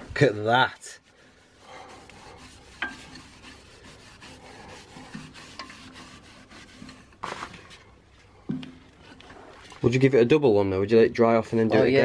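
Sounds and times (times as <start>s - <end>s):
cloth rubbing on turning wood: 0.2s - 8.0s.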